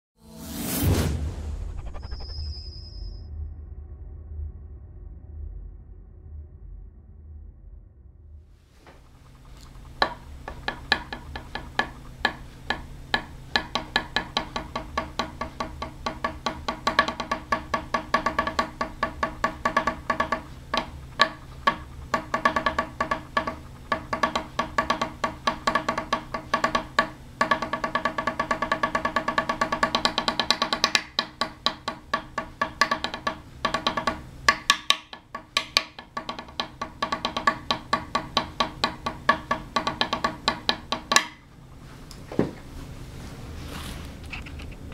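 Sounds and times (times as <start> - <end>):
pencils drumming on wooden table: 8.8 - 41.5.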